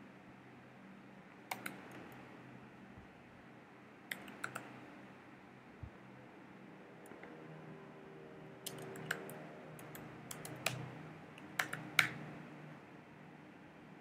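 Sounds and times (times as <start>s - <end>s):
computer keyboard typing: 1.5s - 2.2s, 4.1s - 4.8s, 8.7s - 12.3s.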